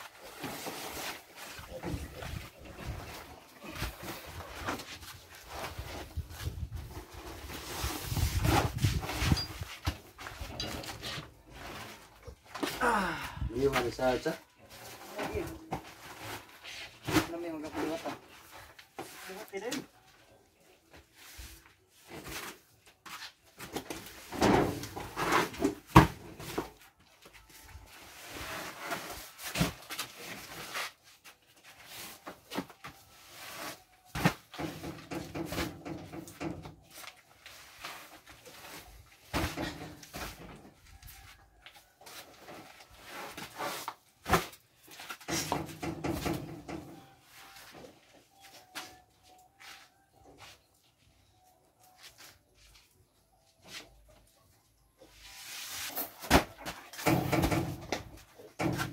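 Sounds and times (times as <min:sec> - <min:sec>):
paper bags rustling and scraping: 0:00.0 - 0:12.2
cement sacks thudding: 0:33.5 - 0:36.9, 0:38.0 - 0:40.7, 0:43.2 - 0:46.6, 0:55.9 - 0:58.9.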